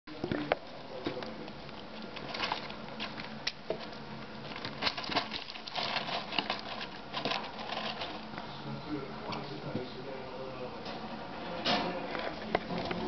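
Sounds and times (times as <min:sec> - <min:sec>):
bedding rustling and clicking: 0:02.2 - 0:08.3.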